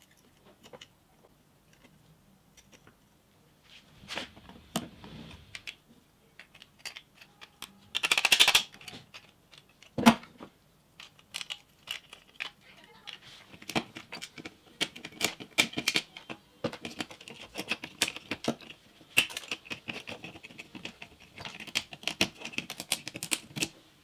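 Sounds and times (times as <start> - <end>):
pliers crackling circuit board: 6.8 - 8.9.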